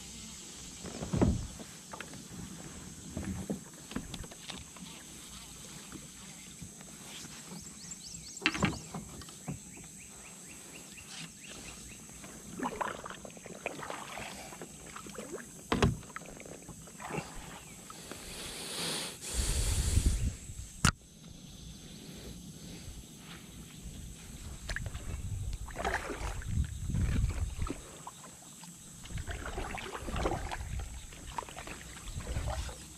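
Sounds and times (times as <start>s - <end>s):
paddle dipping through water: 8.8s - 18.4s, 24.0s - 32.9s
water rushing: 29.1s - 32.9s.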